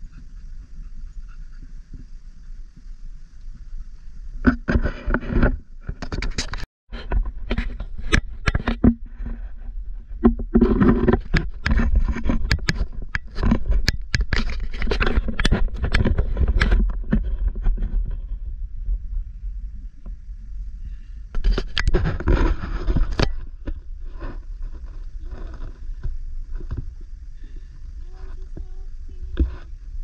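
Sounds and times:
camera handling crackling and scraping: 4.5s - 9.4s, 10.2s - 18.2s, 21.4s - 23.8s.

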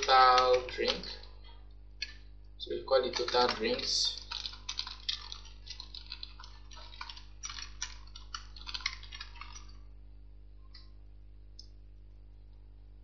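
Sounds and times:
typing on computer keyboard: 0.0s - 1.3s, 2.9s - 9.8s.

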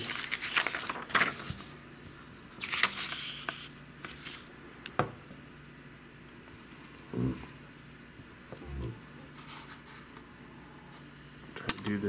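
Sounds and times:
hands rustling tracing paper: 0.0s - 4.5s, 9.3s - 10.3s.

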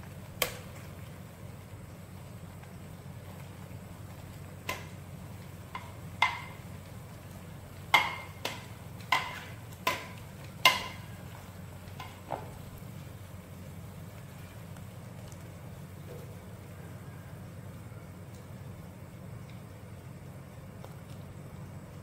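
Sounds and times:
boiling pot rumble: 0.0s - 22.0s.

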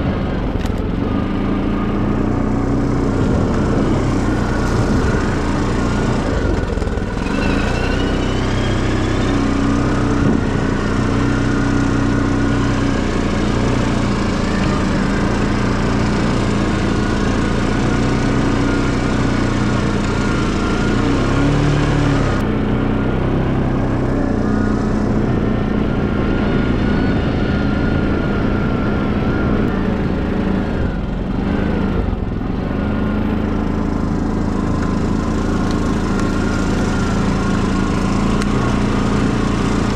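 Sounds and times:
quad bike engine running: 0.0s - 39.9s.

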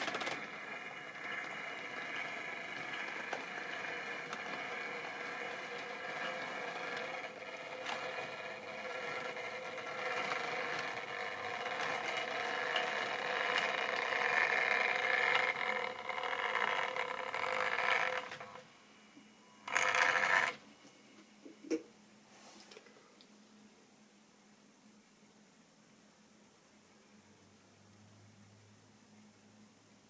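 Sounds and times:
small electric motor hum: 0.0s - 18.6s, 19.6s - 20.6s
wheels clicking over rail joints: 0.0s - 18.6s.

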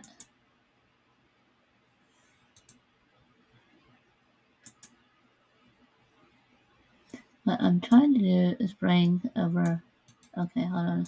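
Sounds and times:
faint computer mouse clicks: 0.0s - 0.4s, 2.5s - 2.8s, 4.6s - 5.0s, 9.6s - 10.4s.

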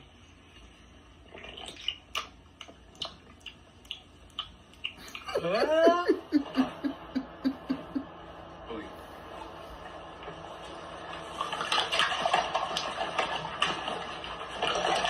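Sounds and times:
man gulping a drink: 1.2s - 5.6s.

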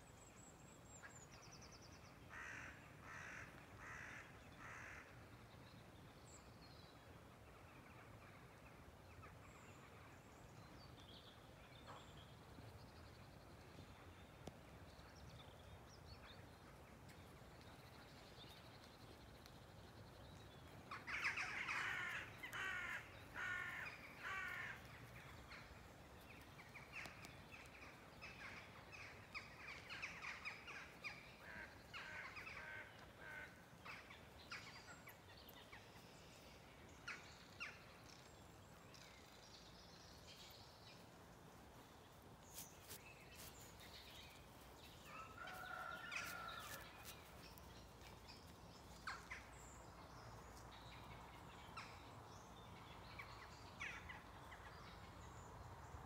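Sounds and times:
faint birdsong: 0.0s - 56.0s
crows cawing: 2.3s - 5.1s, 21.1s - 24.9s.

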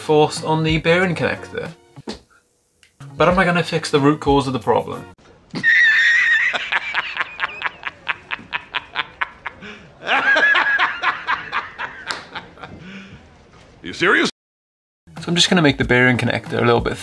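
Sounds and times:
man laughing loudly: 5.5s - 12.9s.

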